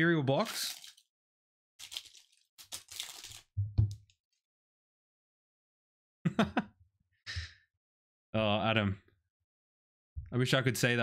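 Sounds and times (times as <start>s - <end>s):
cellophane wrapper crinkling: 0.4s - 1.1s, 1.8s - 3.5s.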